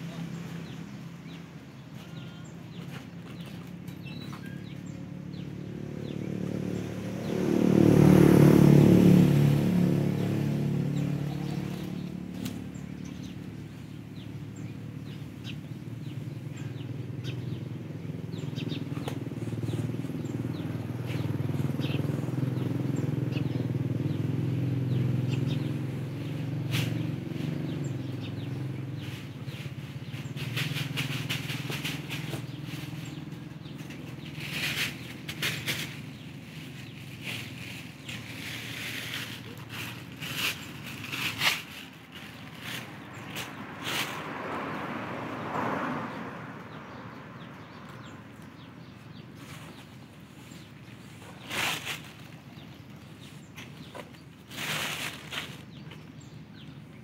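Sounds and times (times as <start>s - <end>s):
birds chirping: 0.0s - 57.0s
small engine running: 29.0s - 42.9s.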